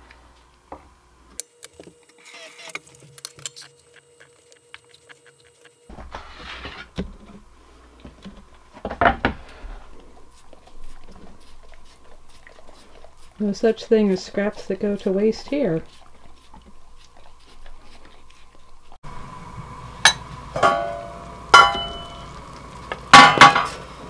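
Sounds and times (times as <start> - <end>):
dog licking: 3.9 - 5.8, 9.9 - 19.0.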